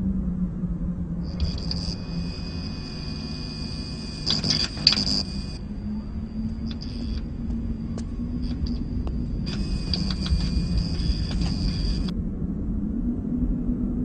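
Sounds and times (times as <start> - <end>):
steady low hum: 0.0 - 14.0
high thin electronic tone: 1.3 - 12.1.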